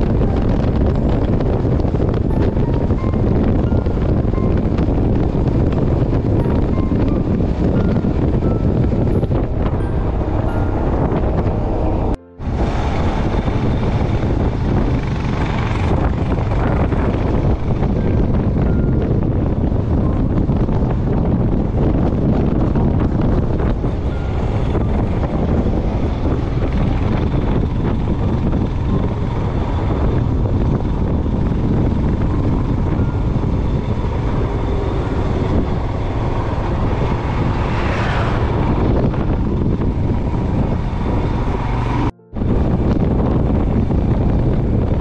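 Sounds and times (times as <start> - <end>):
motorcycle engine running: 0.0 - 45.0
wind rushing over microphone: 0.0 - 45.0
falling whoosh: 34.2 - 40.2.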